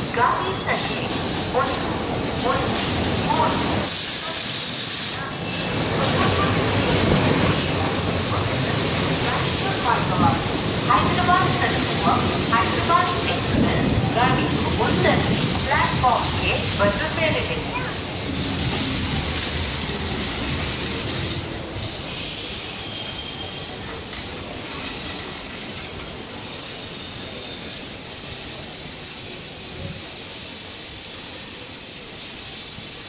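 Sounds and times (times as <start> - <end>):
train wheels rumbling on rails: 0.0 - 33.0
high-pitched wheel squeal: 21.6 - 25.9.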